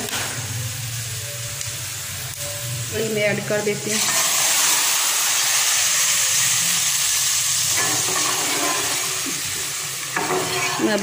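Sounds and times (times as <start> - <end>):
hot oil sizzling in liquid: 0.0 - 11.0.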